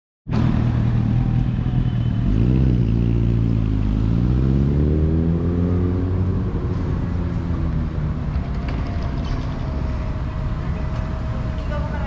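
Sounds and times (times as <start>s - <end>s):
traffic noise: 0.3s - 12.0s
bus engine running: 6.0s - 12.0s.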